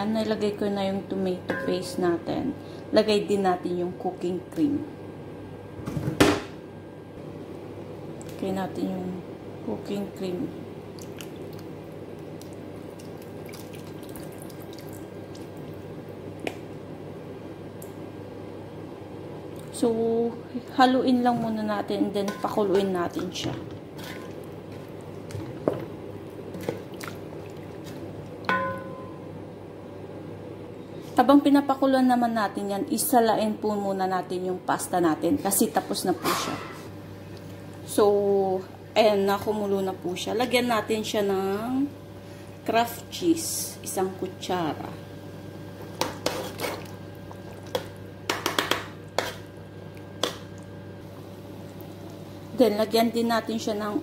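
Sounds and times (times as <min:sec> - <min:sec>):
steady low hum: 0:00.0 - 0:54.0
spoon knocking metal pot: 0:01.5 - 0:01.9, 0:28.5 - 0:29.2
spoon stirring thick sauce: 0:46.0 - 0:50.4.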